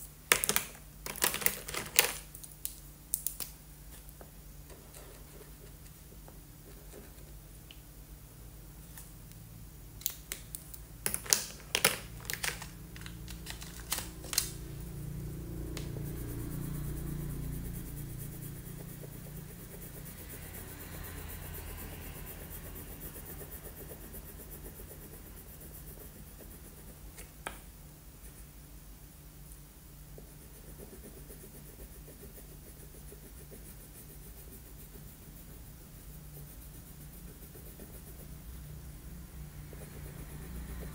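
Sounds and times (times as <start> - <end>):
steady low hum: 0.0 - 40.9
crayon colouring on paper: 15.6 - 27.4, 30.2 - 38.6.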